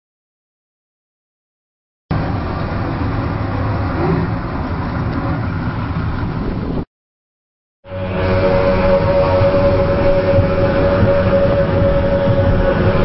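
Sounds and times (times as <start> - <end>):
outboard engines droning: 2.1 - 6.9, 7.8 - 13.0
steady whine: 7.8 - 13.0.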